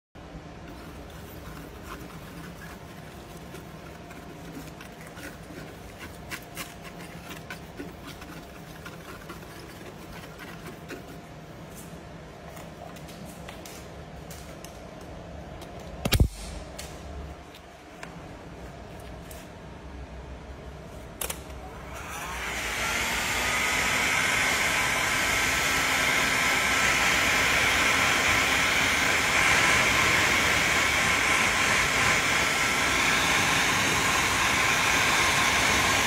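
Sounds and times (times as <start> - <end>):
wire brush scratching: 0.7 - 12.0.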